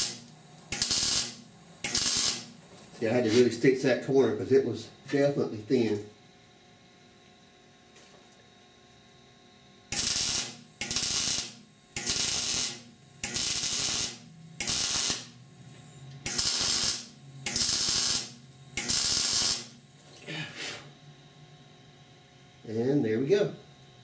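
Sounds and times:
welder arc sizzling: 0:00.0 - 0:04.9, 0:09.9 - 0:15.5, 0:16.2 - 0:19.9.

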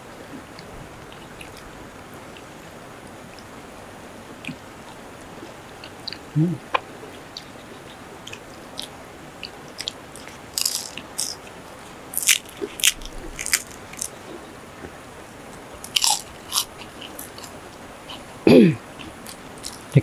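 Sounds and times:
crunching while chewing food: 0:05.8 - 0:14.2, 0:15.8 - 0:18.2, 0:19.0 - 0:19.9.

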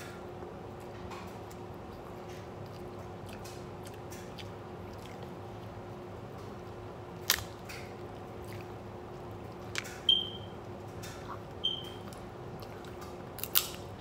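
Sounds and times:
chewing: 0:01.2 - 0:10.0, 0:11.0 - 0:13.9
crab legs being picked apart: 0:06.4 - 0:08.8, 0:09.6 - 0:10.1, 0:12.1 - 0:14.0.

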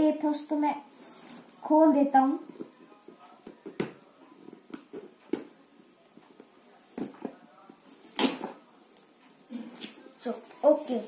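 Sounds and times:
tape peeling off cardboard: 0:07.8 - 0:08.6.

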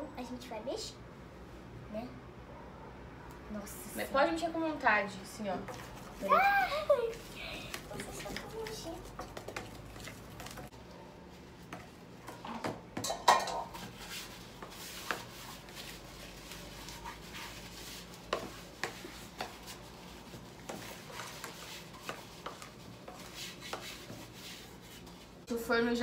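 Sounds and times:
spoon stirring batter in plastic bowl: 0:05.5 - 0:06.2, 0:07.1 - 0:25.4.

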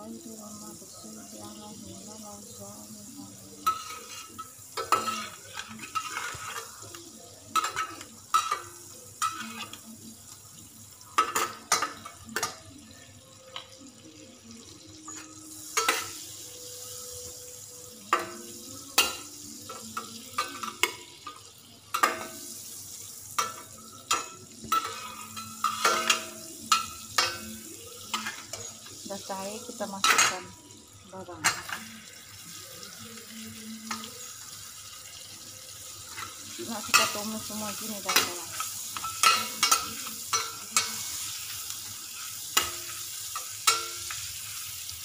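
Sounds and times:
margarine sizzling in pan: 0:00.0 - 0:45.0
metal spatula scraping saucepan: 0:03.6 - 0:09.9, 0:23.4 - 0:29.0, 0:35.9 - 0:44.7.

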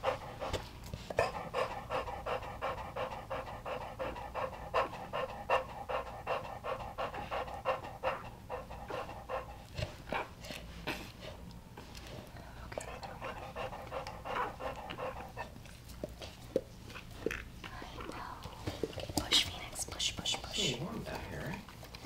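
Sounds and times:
dog panting rapidly: 0:00.0 - 0:10.0, 0:12.9 - 0:16.4.

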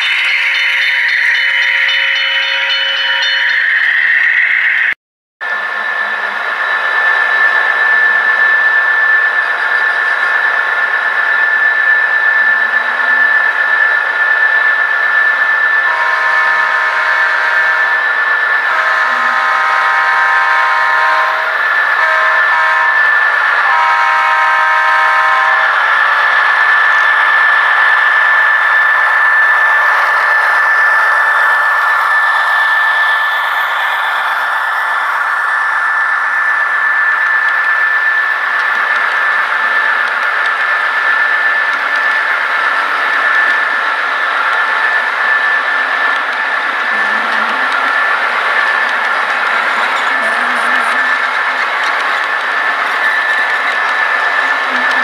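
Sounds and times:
high-pitched whine and hiss: 0:05.5 - 0:55.0
model locomotive horn blasts: 0:15.7 - 0:27.6, 0:53.0 - 0:55.0.

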